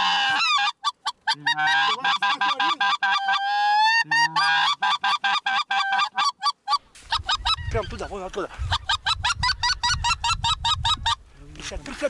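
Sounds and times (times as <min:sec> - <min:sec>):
goose calls yelping: 0:00.0 - 0:08.0.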